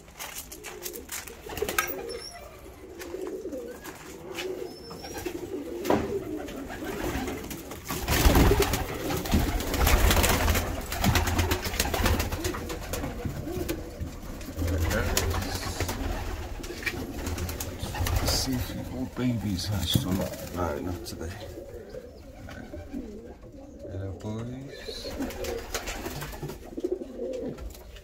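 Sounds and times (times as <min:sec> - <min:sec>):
pigeons cooing: 0:00.0 - 0:28.0
loud rustling and knocking: 0:07.8 - 0:18.7.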